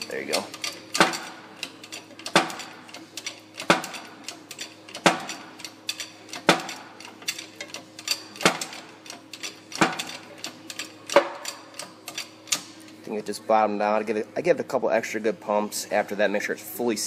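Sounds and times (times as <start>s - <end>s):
press pumping: 0.0s - 13.1s.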